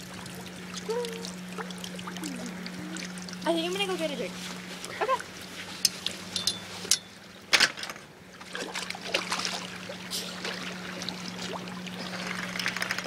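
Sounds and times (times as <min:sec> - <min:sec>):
lake water splashing: 0:00.0 - 0:06.3, 0:08.2 - 0:13.0
faint low hum: 0:00.0 - 0:07.4
water lapping: 0:00.0 - 0:07.5, 0:08.2 - 0:13.0.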